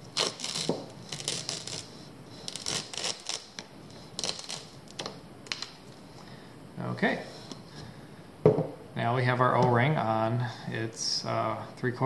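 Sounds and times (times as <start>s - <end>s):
duct tape ripping off pipe: 0.0s - 5.8s.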